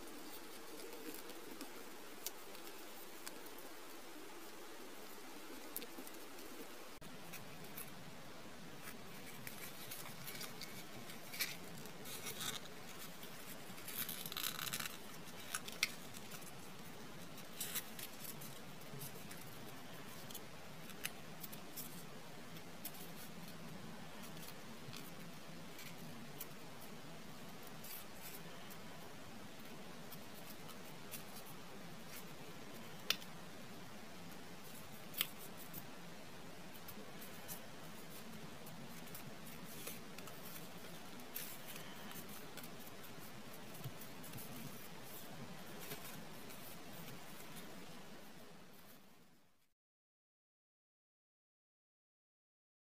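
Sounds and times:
sharp paper ticks: 0.0 - 4.6, 8.8 - 28.8, 36.7 - 48.0
paper crinkling and rustling: 8.8 - 28.8, 36.7 - 49.0.

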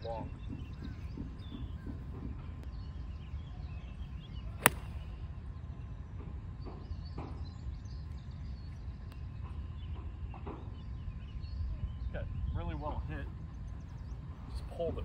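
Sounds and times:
golf club striking ball: 4.6 - 5.0.

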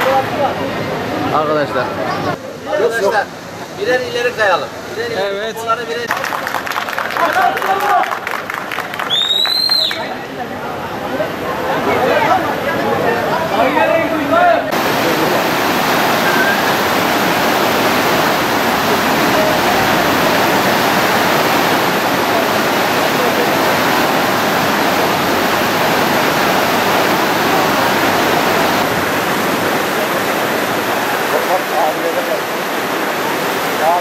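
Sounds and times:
rushing water of waterfall: 0.0 - 34.0.

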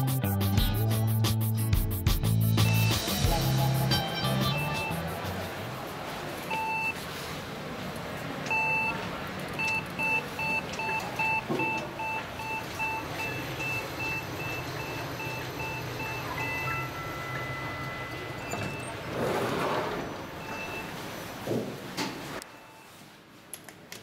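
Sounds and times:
elevator signal beeps: 6.5 - 7.0, 8.5 - 19.1, 20.4 - 21.0, 22.4 - 23.0.

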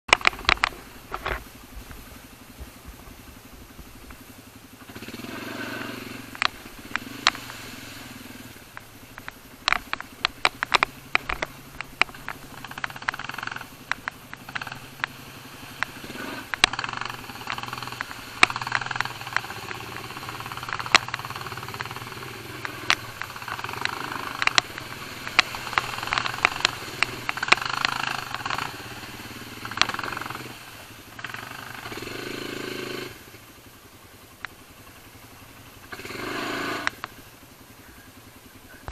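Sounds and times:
quad bike engine: 0.0 - 38.9
knocks and rattles: 8.7 - 15.1.

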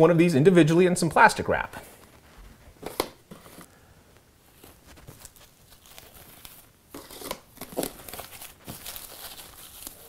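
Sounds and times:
plastic wrap crinkling: 2.0 - 10.0.

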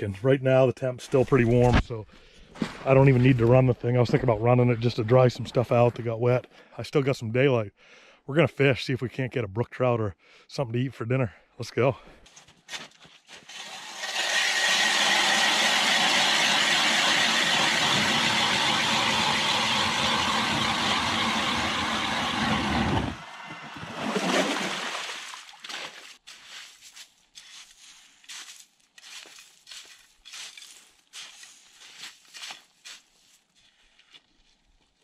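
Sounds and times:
electric ice auger boring: 13.4 - 24.0.

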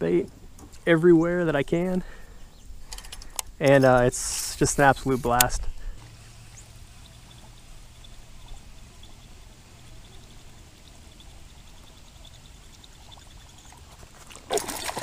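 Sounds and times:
soft water noise: 5.8 - 15.0
water commotion: 12.2 - 15.0.

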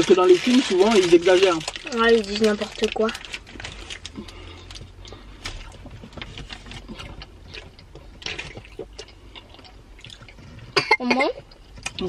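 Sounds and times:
chewing: 1.6 - 10.8.

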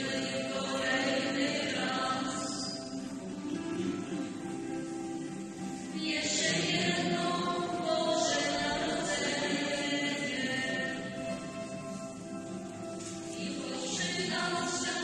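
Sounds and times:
group singing a carol: 0.0 - 3.2, 6.0 - 12.2, 13.3 - 15.0.

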